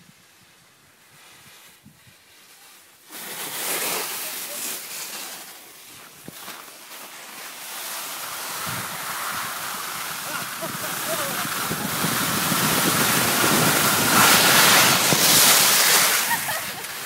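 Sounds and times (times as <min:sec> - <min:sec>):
skis sliding over snow: 0:00.0 - 0:17.0
wind on microphone: 0:08.4 - 0:17.0.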